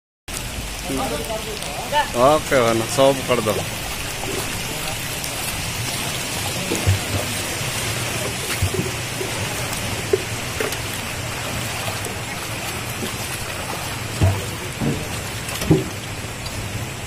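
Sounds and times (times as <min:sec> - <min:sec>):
stream water rushing: 0:00.3 - 0:17.0
water splashing: 0:00.3 - 0:17.0
short knocks: 0:14.2 - 0:16.0.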